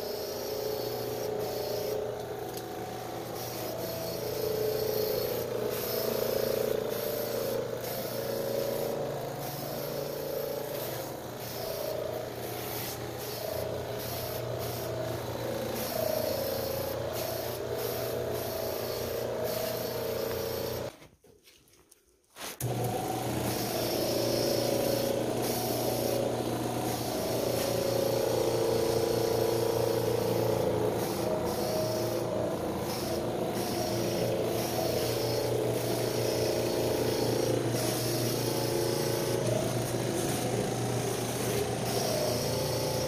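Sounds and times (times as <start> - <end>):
spray wand hissing: 0.0 - 20.9, 22.4 - 43.0
steady machine hum: 0.0 - 20.9, 22.6 - 43.0.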